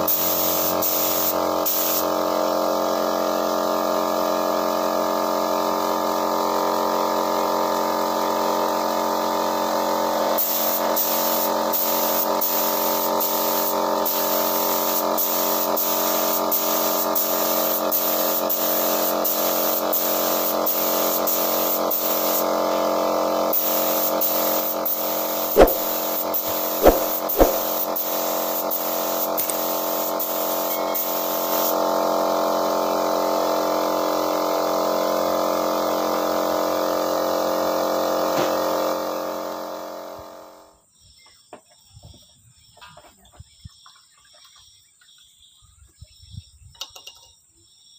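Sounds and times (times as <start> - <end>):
spray gun hissing: 0.0 - 2.1, 10.4 - 22.4, 23.6 - 30.5
sharp knocks: 25.6 - 25.9, 26.8 - 27.7
air compressor humming: 25.6 - 27.8.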